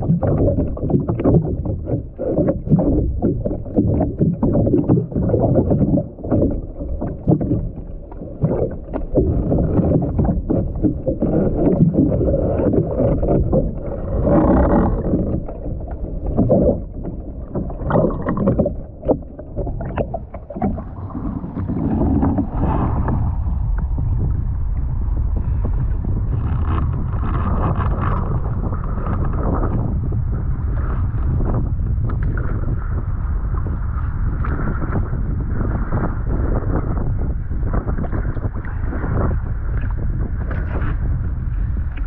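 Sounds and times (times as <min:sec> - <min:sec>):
muffled underwater sloshing: 0:00.0 - 0:42.0
water lapping around hull: 0:00.0 - 0:42.0
wind: 0:18.2 - 0:42.0.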